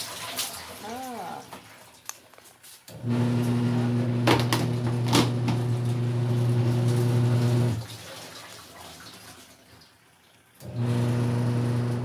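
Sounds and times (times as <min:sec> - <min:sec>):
clothes churning in water: 0:00.0 - 0:02.1, 0:04.1 - 0:09.6
washing machine motor humming: 0:02.9 - 0:08.3, 0:10.5 - 0:12.0.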